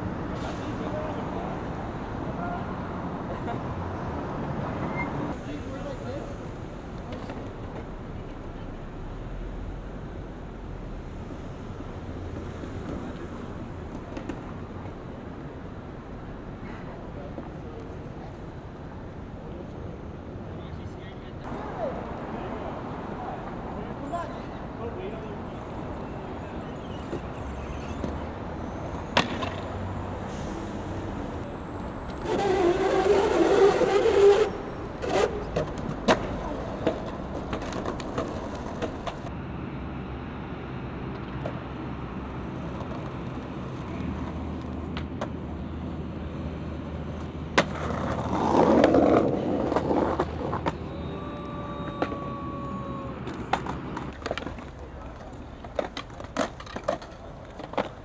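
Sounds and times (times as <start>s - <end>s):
skateboard wheels rolling on pavement: 0.0s - 58.0s
skateboard clacks: 29.0s - 29.7s, 32.1s - 39.3s, 47.1s - 58.0s.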